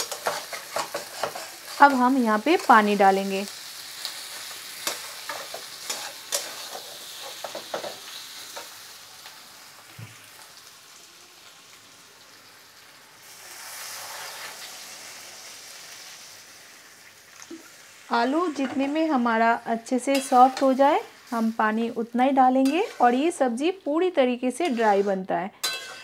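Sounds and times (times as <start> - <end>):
metal spatula scraping a pan: 0.0 - 2.8, 4.1 - 8.6, 13.5 - 14.7, 20.0 - 21.6, 22.6 - 23.3, 24.4 - 26.0
frying sizzle: 0.0 - 26.0
water poured into hot pan: 13.2 - 18.1.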